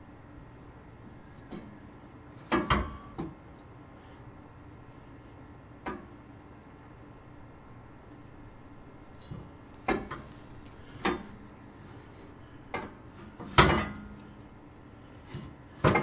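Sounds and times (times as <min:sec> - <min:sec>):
sharp knocks and clunks: 0:02.5 - 0:03.4, 0:09.2 - 0:10.2, 0:12.7 - 0:14.1.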